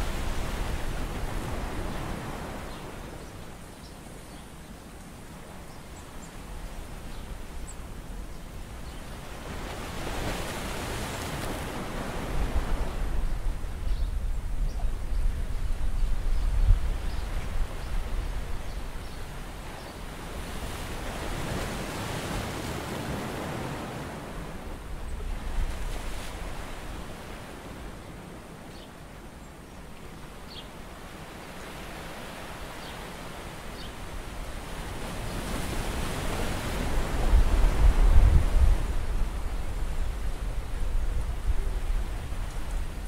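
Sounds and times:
wind rumble on microphone: 6.4 - 28.5, 33.8 - 43.0.

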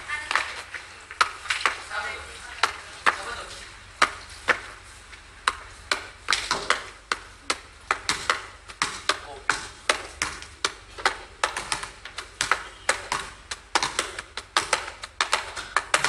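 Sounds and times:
basketball bouncing on court: 5.5 - 16.0.

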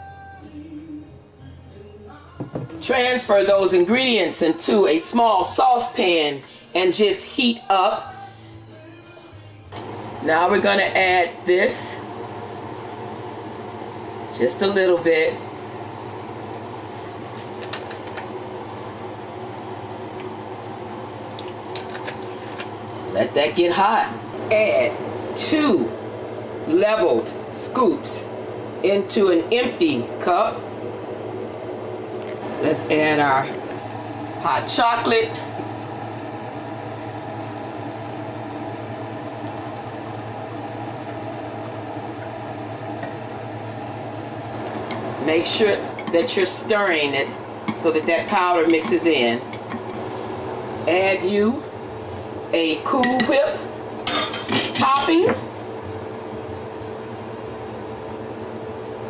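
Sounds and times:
mechanical hum: 0.0 - 59.0.

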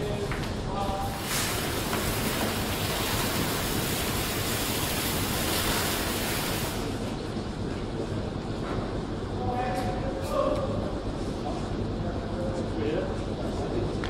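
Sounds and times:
extinguisher jet hissing: 1.2 - 7.0.

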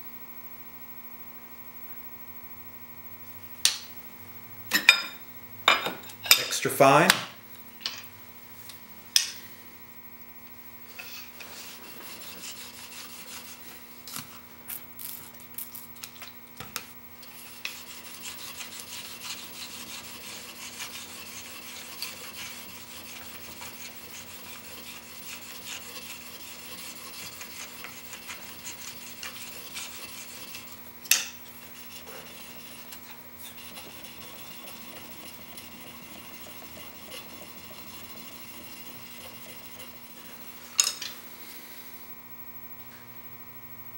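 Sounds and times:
chisel scraping on sharpening stone: 17.4 - 39.9.

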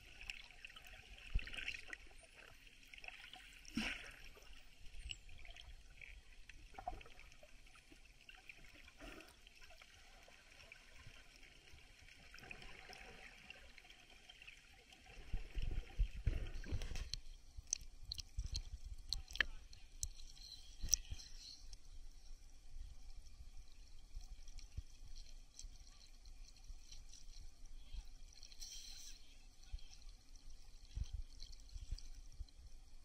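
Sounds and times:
water sloshing and splashing: 0.0 - 21.4
muffled underwater hiss: 0.0 - 33.0.

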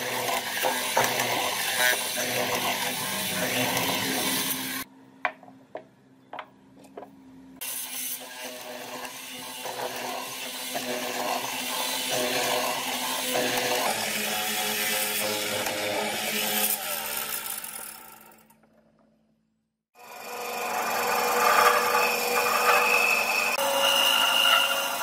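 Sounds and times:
mortiser motor hum: 0.0 - 4.9, 7.6 - 19.0, 20.0 - 25.0
chisel cutting through wood: 7.8 - 17.8, 20.1 - 25.0.

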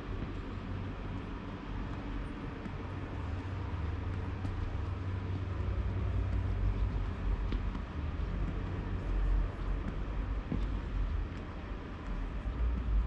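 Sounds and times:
low engine rumble: 0.0 - 13.0
street traffic: 0.0 - 13.0.

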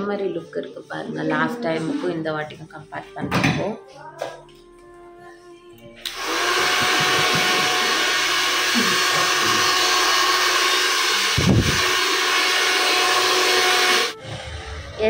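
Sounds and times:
faint hair dryer whine: 6.0 - 14.5
hair dryer blowing: 6.0 - 14.5.

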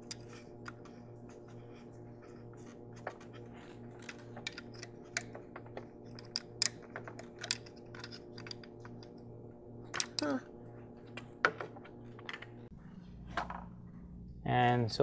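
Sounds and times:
faint pulsing hum: 0.0 - 15.0
hand tools clicking and tapping: 3.0 - 9.2.

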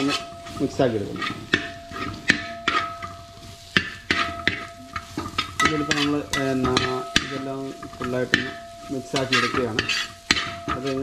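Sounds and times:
light sizzle: 0.0 - 11.0
metal spatula scraping a pot: 0.0 - 11.0.

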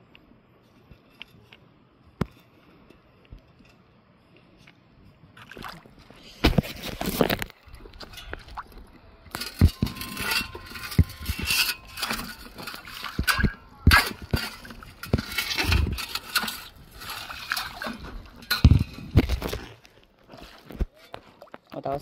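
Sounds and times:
water splashing and sloshing: 0.6 - 22.0
stones scraping in metal scoop: 9.3 - 19.6.

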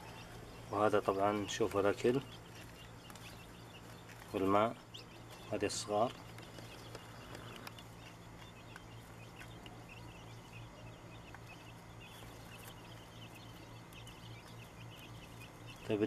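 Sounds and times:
chicks peeping: 0.0 - 16.0
steady low hum: 0.0 - 16.0.

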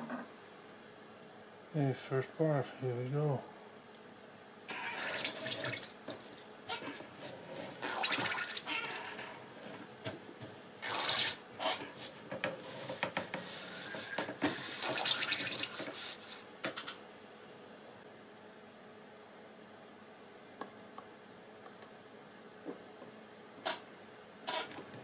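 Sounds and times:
liquid squirting and splashing: 4.8 - 6.5, 7.8 - 9.0, 10.8 - 11.4, 14.7 - 15.8.

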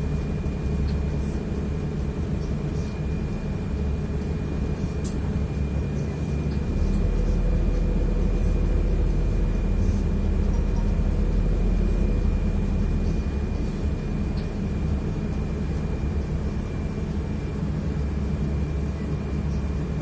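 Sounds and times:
bus engine and road rumble: 0.0 - 20.0.

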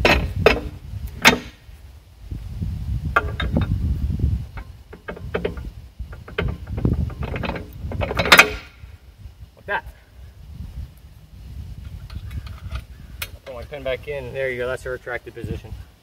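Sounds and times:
metal clanking: 0.0 - 1.6, 3.1 - 3.9, 4.5 - 8.9.

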